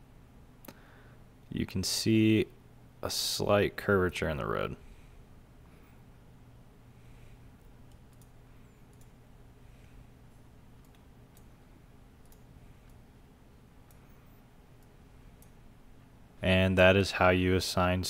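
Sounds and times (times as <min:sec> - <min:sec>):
computer mouse clicks: 0:07.8 - 0:09.2, 0:10.8 - 0:11.6, 0:12.2 - 0:13.0.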